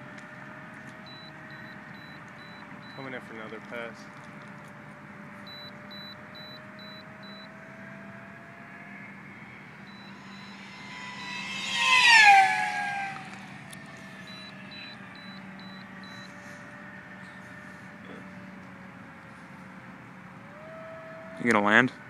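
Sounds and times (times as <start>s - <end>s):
rc plane motor whine: 9.2s - 16.6s.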